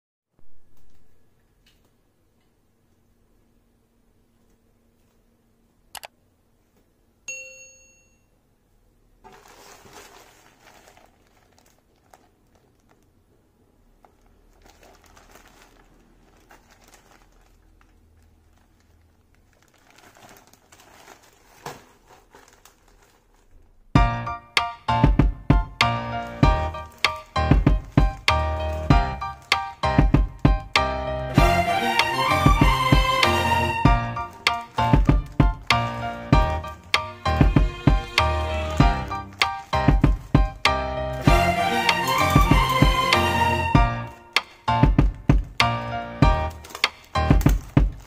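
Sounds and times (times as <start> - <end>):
click: 5.9 - 6.2
short ringing ding: 7.3 - 8.3
plastic bag crinkling: 9.2 - 23.9, 26.2 - 30.2, 33.5 - 40.7, 46.5 - 48.0
loud music: 24.0 - 47.5.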